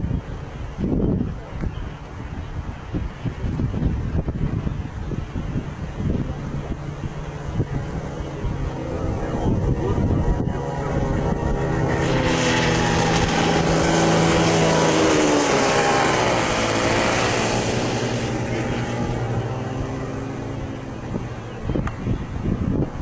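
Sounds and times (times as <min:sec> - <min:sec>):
kart engines passing: 0:08.1 - 0:21.7.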